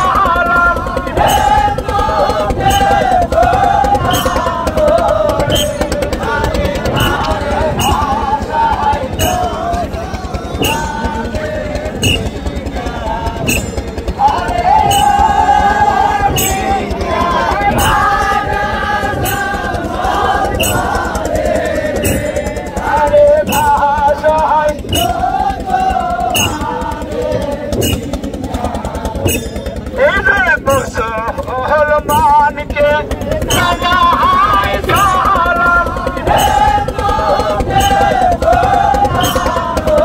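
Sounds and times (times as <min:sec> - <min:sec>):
cymbal-like strikes: 0:00.0 - 0:30.0
musical backing: 0:00.0 - 0:32.4
sharp percussive hit: 0:00.0 - 0:32.4, 0:33.2 - 0:40.0
voices singing a chant: 0:00.0 - 0:40.0.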